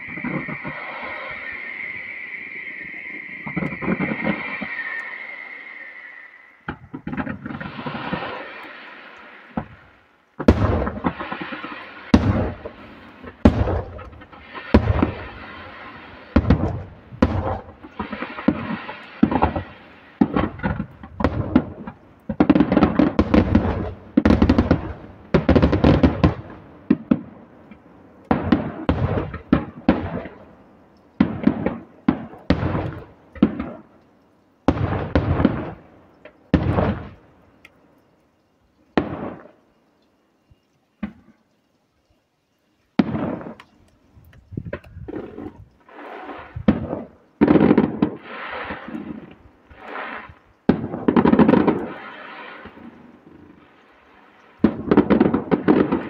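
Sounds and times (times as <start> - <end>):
fireworks bangs: 0.0 - 30.5, 31.2 - 34.0, 34.7 - 37.3, 39.0 - 39.6, 43.0 - 56.0.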